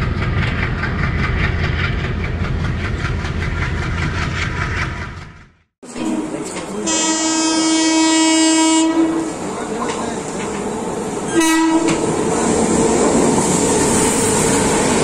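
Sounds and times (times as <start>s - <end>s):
train approaching rumble: 0.0s - 15.0s
locomotive horn blasts: 6.1s - 9.3s, 11.3s - 12.0s.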